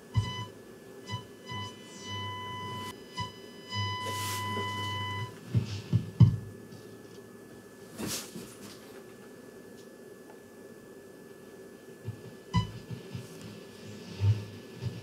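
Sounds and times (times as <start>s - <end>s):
radio test tone: 0.0s - 5.4s.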